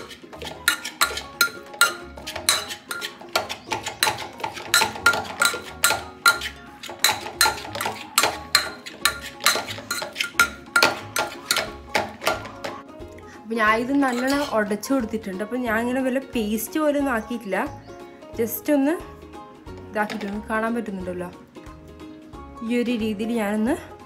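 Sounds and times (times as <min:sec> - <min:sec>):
metal spoon clinking and scraping pan: 0:00.0 - 0:12.8, 0:13.8 - 0:14.7.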